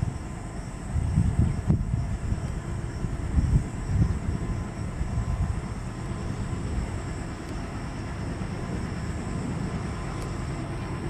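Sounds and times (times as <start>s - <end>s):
deep diesel locomotive rumble: 0.0s - 11.0s.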